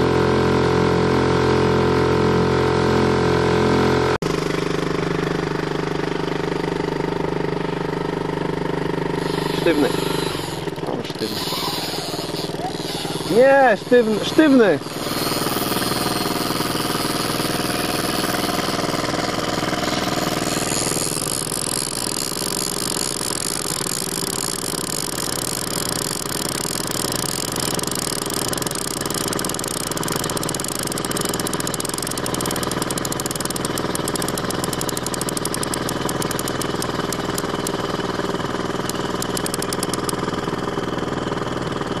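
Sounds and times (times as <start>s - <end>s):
outboard motor running: 0.0s - 42.0s
fast light ticking: 20.0s - 37.8s, 38.8s - 40.2s.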